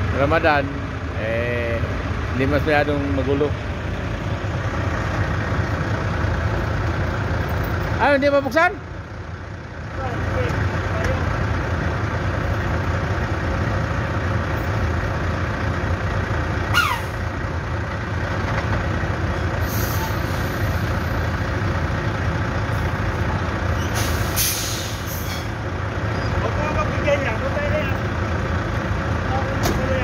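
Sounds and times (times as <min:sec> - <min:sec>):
truck engine idling: 0:00.0 - 0:30.0
air brake hisses: 0:19.6 - 0:20.4, 0:23.8 - 0:25.5.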